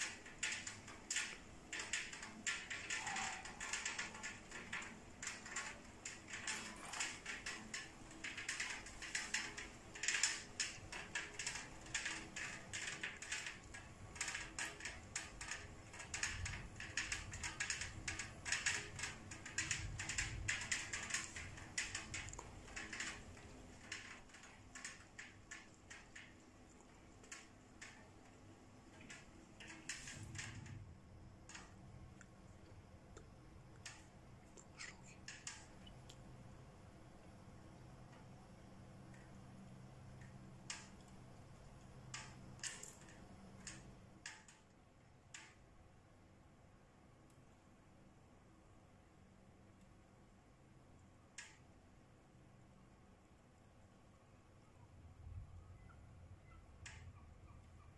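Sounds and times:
rain drops tapping: 0.0 - 46.6, 51.3 - 51.6
faint low rumble: 52.2 - 57.9.

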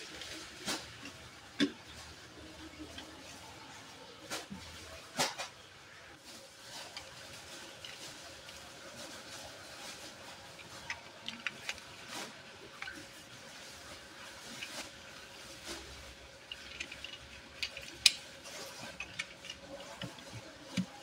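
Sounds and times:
metal toy car clicking in hands: 16.4 - 21.0.

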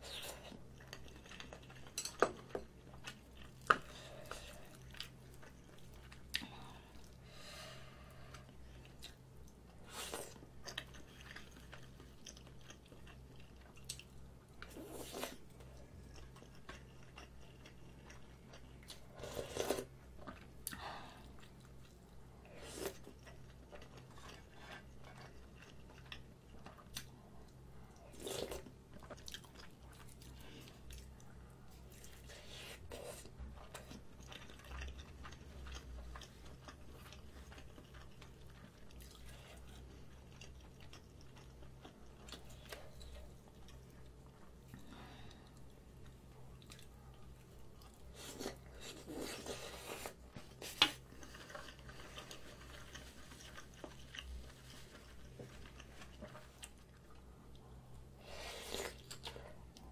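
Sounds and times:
low electrical hum: 0.0 - 59.9.

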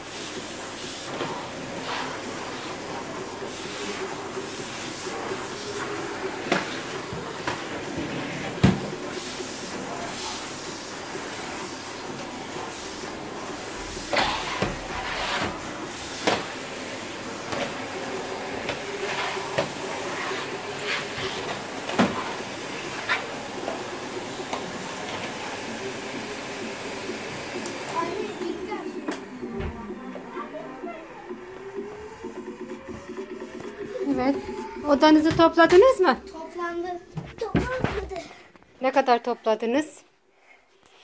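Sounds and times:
vacuum cleaner running: 0.0 - 36.2
vacuum wand on rug: 0.1 - 30.6.

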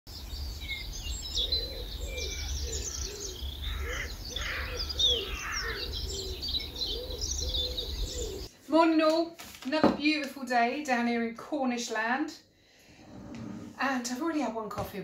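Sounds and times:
songbirds chirping and trilling: 0.1 - 8.5
dove cooing: 1.4 - 8.5.

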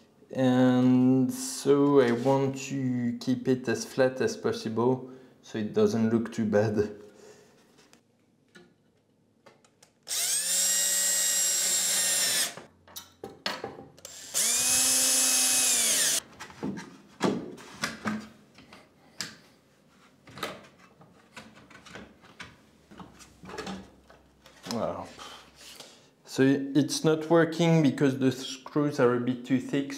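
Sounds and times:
cordless drill driving screws: 10.1 - 12.6, 14.0 - 16.2.

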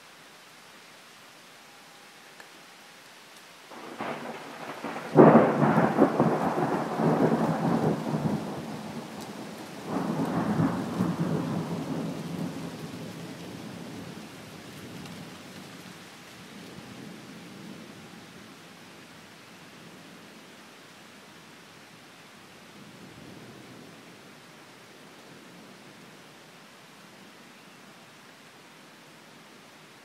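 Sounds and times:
rain hissing: 0.0 - 27.4
thunder rumbling: 3.7 - 14.2.

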